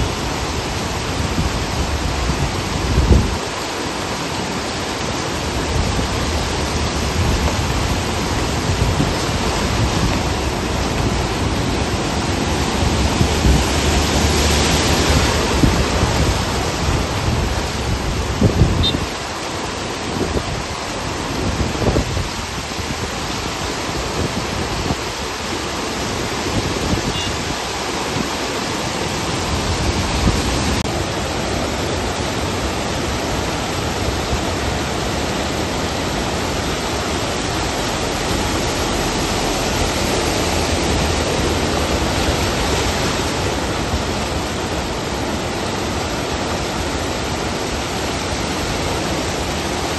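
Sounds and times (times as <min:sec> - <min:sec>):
floodwater roaring: 0:00.0 - 0:49.9
rain: 0:00.0 - 0:49.9
vehicle splashing through water: 0:00.0 - 0:49.9.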